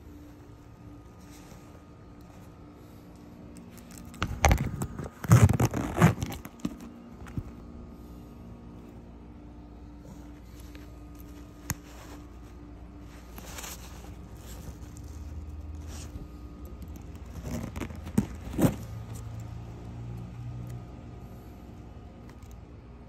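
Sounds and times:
leather and fabric rustling: 0.0 - 7.7, 9.9 - 19.9
zipper pulls clinking: 3.9 - 6.8, 13.4 - 19.4.

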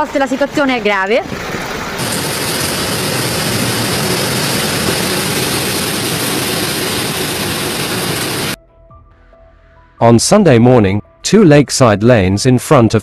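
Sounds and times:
storm water rushing: 1.2 - 8.6.

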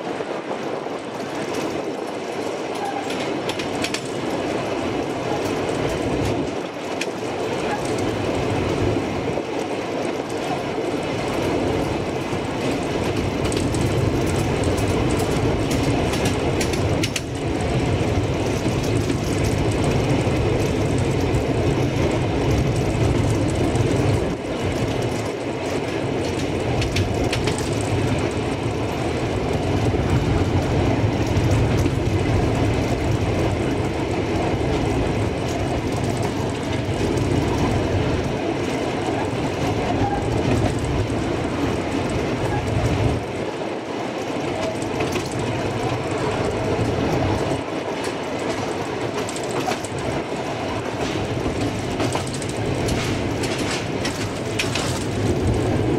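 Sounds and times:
train wheels rumbling on rails: 0.0 - 55.9
brief clicks of train wheels: 0.6 - 8.2, 12.4 - 17.5, 22.6 - 28.7, 44.2 - 55.8.

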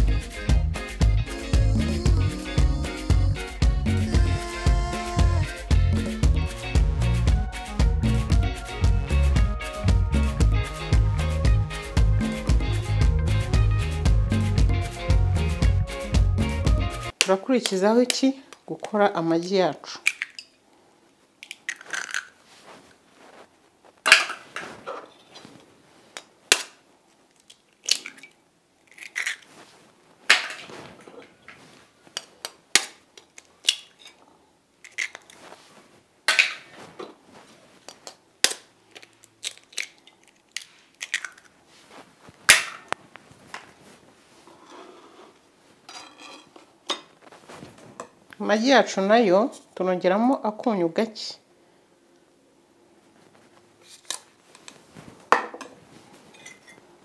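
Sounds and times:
eggshells cracking on knife blade: 20.0 - 20.5, 21.4 - 22.4, 26.2 - 29.5, 32.2 - 34.2, 34.8 - 35.4, 37.9 - 41.5
crunch of shells pulled apart: 21.4 - 22.4, 26.5 - 29.5, 34.8 - 35.4, 38.0 - 41.5
knife clinking against plate: 45.9 - 47.1, 56.4 - 56.8.

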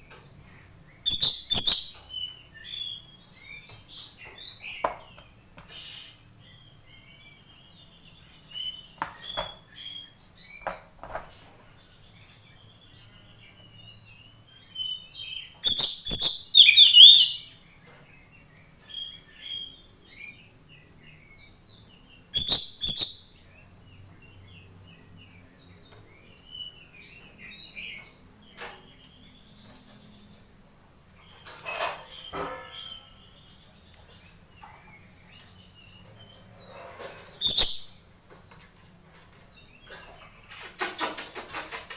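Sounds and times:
soft bird chirps: 0.0 - 30.5, 31.2 - 38.0
bird calling in sharp bursts: 15.7 - 17.4.

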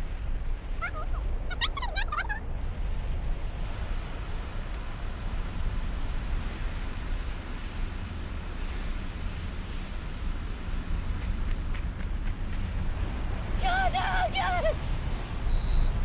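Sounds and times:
low rumbling: 0.0 - 16.0
hiss: 3.6 - 12.8.

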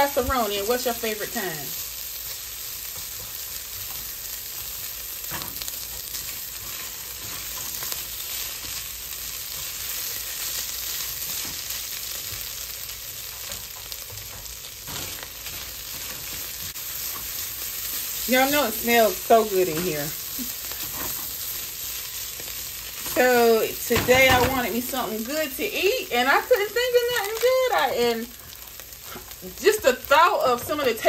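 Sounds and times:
meat and rice sizzling in a pot: 0.0 - 31.0
spatula scraping a pan: 2.8 - 12.4, 13.2 - 25.0.

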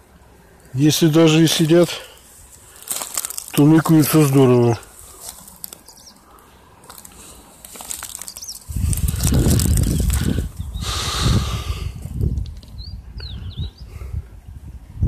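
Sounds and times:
grass rustling: 0.0 - 12.8
wind and handling buffeting: 0.0 - 15.0
faint high bird chirp: 5.8 - 6.2, 8.2 - 8.7, 12.7 - 13.9.

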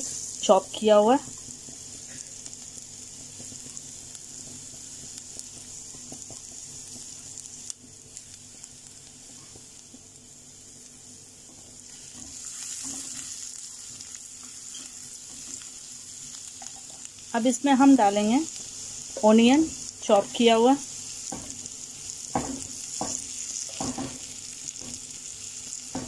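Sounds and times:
garlic sizzling in hot oil: 0.0 - 26.0
spatula stirring in pan: 11.8 - 17.1, 21.0 - 25.2.

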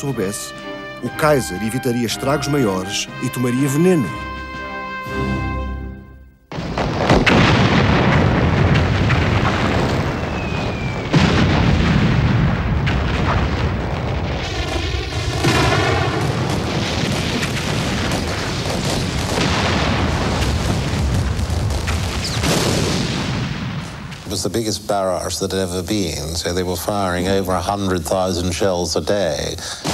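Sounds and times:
heavy guns firing: 6.5 - 24.4.

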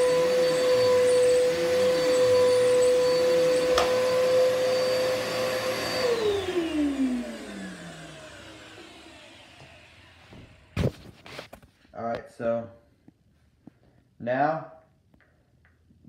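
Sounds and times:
vacuum cleaner motor whining: 0.0 - 11.5.

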